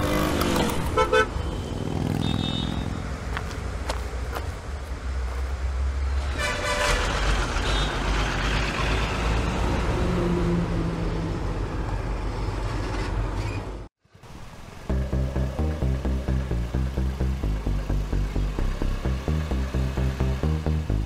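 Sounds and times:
road traffic rumble: 0.0 - 21.0
vehicle horn tooting: 0.9 - 3.0.

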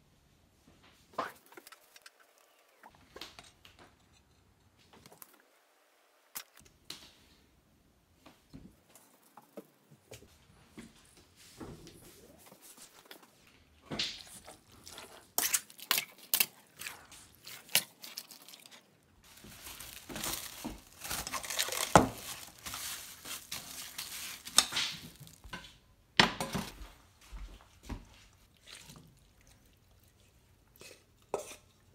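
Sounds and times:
wet meat squishing: 14.1 - 25.4
metal utensil scraping steel bowl: 30.8 - 31.8.

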